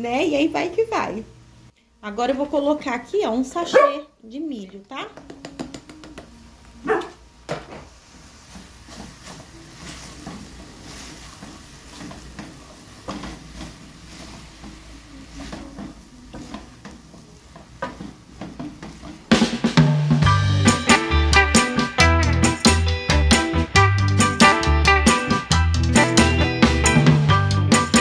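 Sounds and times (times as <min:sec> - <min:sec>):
mince sizzling: 0:08.0 - 0:26.8.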